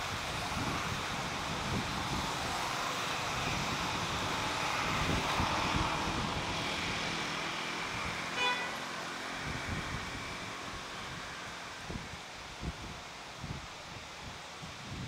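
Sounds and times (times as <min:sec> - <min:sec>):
outdoor background noise: 0:00.0 - 0:15.0
short pitched toot: 0:08.4 - 0:08.8.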